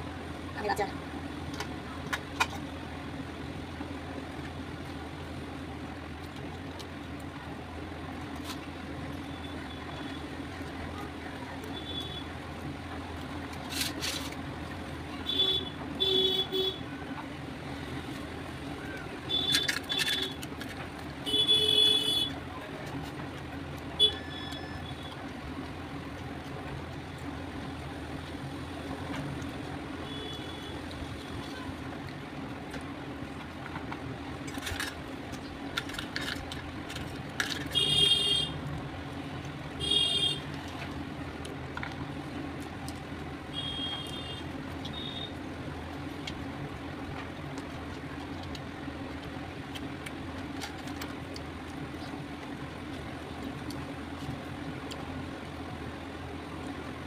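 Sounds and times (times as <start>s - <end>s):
low traffic rumble: 0.0s - 57.0s
vehicle horn toots: 15.3s - 16.8s, 21.2s - 22.3s, 37.7s - 38.6s, 39.8s - 40.4s, 43.5s - 44.4s.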